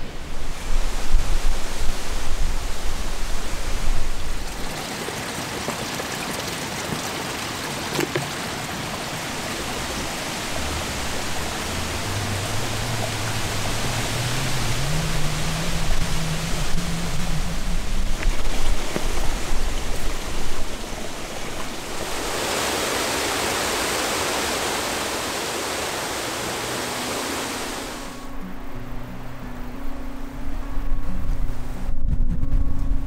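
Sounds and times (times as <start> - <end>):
running spring water: 0.0 - 28.4
plastic bottle filling with water: 4.4 - 9.6
gusty rumbling noise: 9.2 - 23.5, 30.9 - 33.0.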